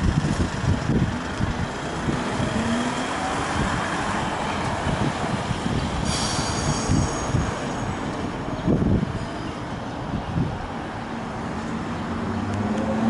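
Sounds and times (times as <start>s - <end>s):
tram rumble with rising whine: 0.0s - 13.0s
tram wheels squealing: 6.0s - 9.8s.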